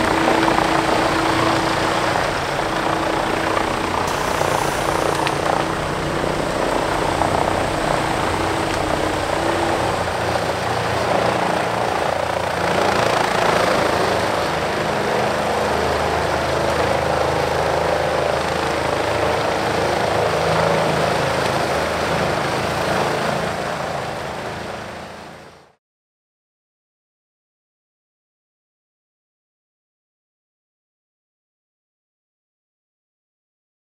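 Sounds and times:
wood chipper engine drone: 0:00.0 - 0:24.5.

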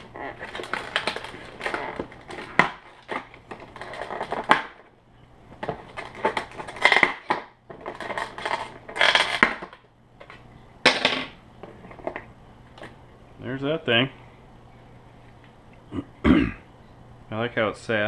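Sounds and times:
plastic packaging crinkling: 0:00.0 - 0:04.8, 0:05.6 - 0:09.8.

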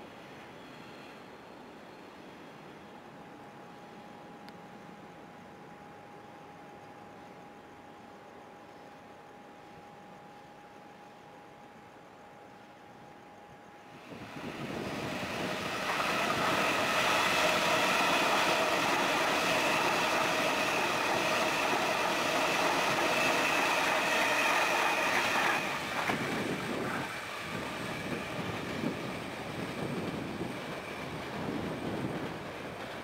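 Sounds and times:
train high whine: 0:00.0 - 0:33.0
train wheels rumbling on rails: 0:13.9 - 0:33.0.

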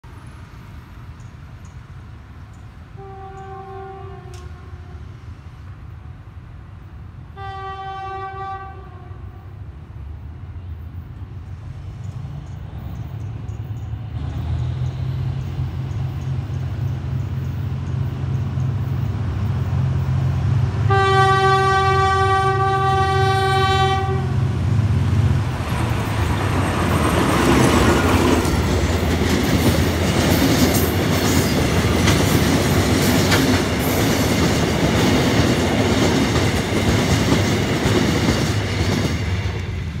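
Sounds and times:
train horn blast: 0:03.0 - 0:05.2, 0:07.3 - 0:09.6, 0:20.8 - 0:24.5
locomotive engine drone: 0:09.2 - 0:37.9
freight wagons rumbling: 0:24.0 - 0:40.0
wheels clacking over rail joints: 0:25.4 - 0:39.8.

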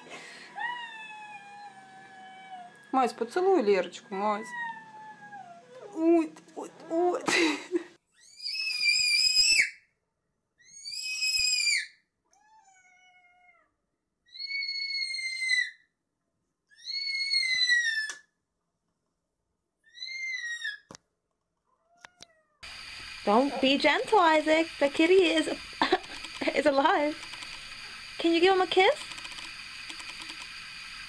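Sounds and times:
cat meowing: 0:12.3 - 0:15.6, 0:21.8 - 0:22.6.

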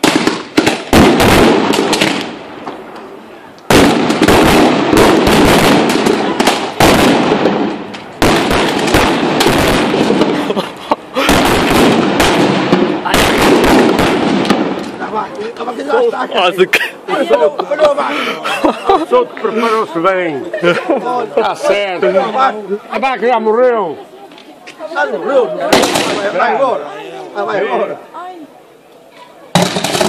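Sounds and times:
firecrackers crackling: 0:00.0 - 0:17.1, 0:21.5 - 0:26.8, 0:29.5 - 0:30.0.

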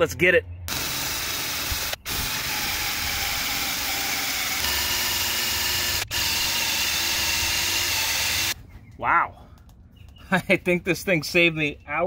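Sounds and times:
drill grinding with motor whine: 0:00.7 - 0:08.6.

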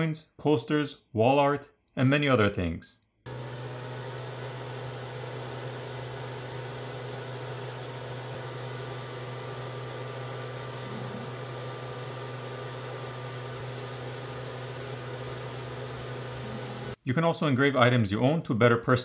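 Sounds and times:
exhaust fan rushing air: 0:03.3 - 0:17.0.

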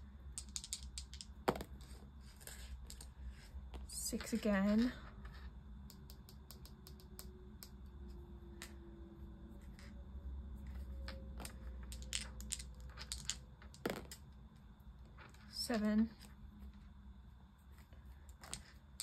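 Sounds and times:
dice clicking in hand: 0:00.4 - 0:01.6, 0:05.9 - 0:07.8, 0:11.4 - 0:14.2.

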